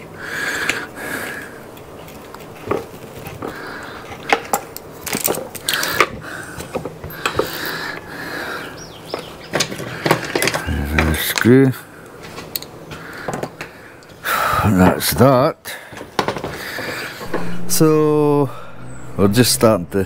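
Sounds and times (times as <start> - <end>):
small screws and plastic parts clattering: 2.0 - 7.6.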